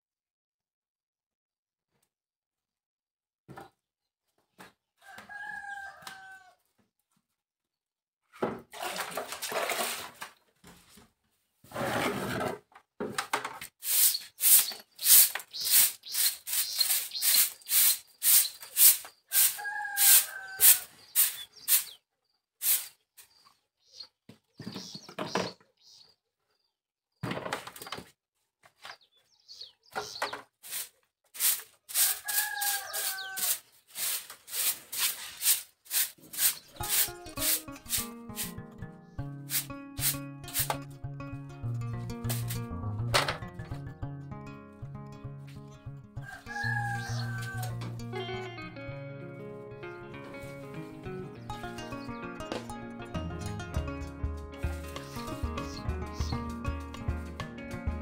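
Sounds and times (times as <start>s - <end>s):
broom sweeping wet ground: 8.8s - 10.2s, 13.8s - 22.0s, 22.6s - 23.4s, 30.6s - 38.6s, 39.4s - 40.9s, 42.2s - 42.7s, 54.6s - 56.4s
chicken calling: 13.9s - 22.0s, 31.9s - 34.2s, 46.2s - 48.8s.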